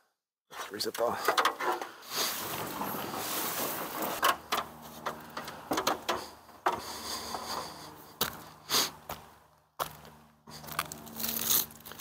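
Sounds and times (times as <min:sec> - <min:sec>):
knocks and scrapes: 0:00.5 - 0:09.2
footsteps on shingle roof: 0:02.3 - 0:12.0.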